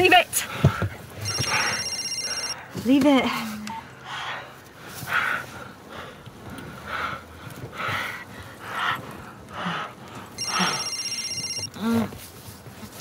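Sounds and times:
heavy breathing: 0.3 - 12.2
phone ringtone trilling: 1.2 - 2.6, 10.4 - 11.7.

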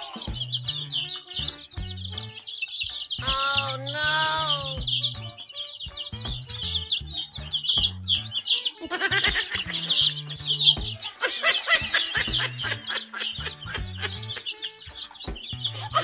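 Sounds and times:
baby chicks peeping: 0.0 - 16.0
background music with bass line: 0.0 - 16.0.

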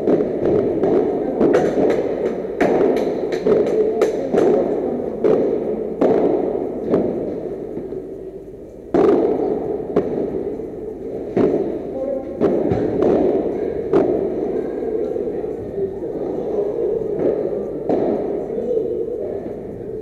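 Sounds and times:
padel ball struck by rackets: 0.0 - 4.6, 5.2 - 8.0, 8.9 - 10.6, 11.2 - 11.8, 12.4 - 14.5, 17.2 - 18.4.

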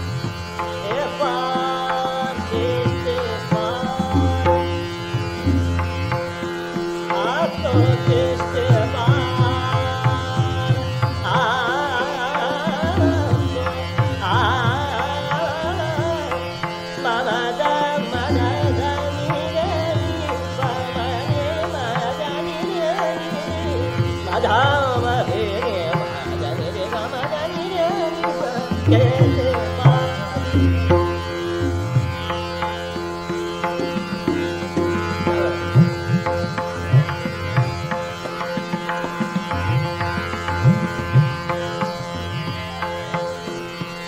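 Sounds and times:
tabla strokes: 0.0 - 44.0
tanpura drone: 0.0 - 44.0
man singing ornamented phrases: 0.8 - 5.0, 7.1 - 31.3.

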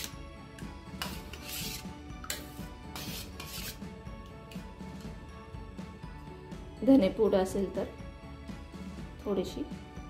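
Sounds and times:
spoon scraping steel bowl: 0.0 - 5.0.

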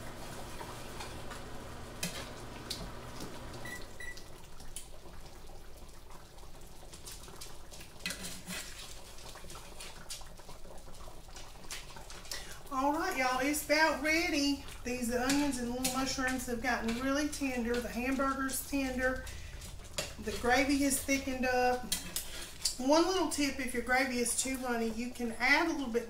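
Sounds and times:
gravy simmering in a skillet: 0.0 - 26.0
spatula stirring: 6.8 - 24.7.

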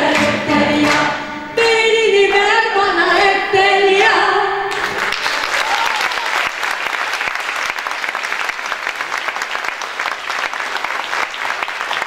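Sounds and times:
audience applause: 4.7 - 12.0.

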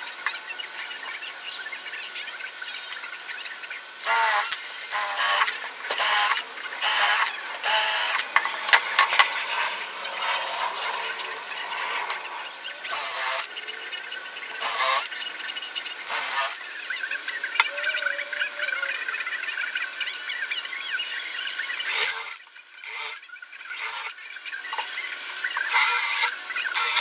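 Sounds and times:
cordless drill bursts: 4.0 - 8.2, 12.9 - 13.5, 14.6 - 15.1, 16.0 - 16.6, 21.5 - 24.2, 25.6 - 27.0.

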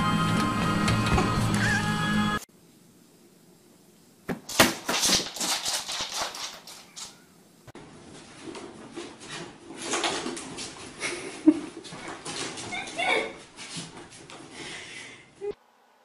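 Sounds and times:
pet claws clicking on floor: 4.5 - 7.2.

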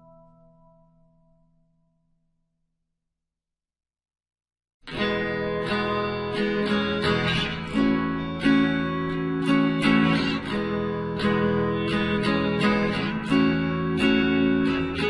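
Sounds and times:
acoustic guitar strumming: 4.9 - 15.0.

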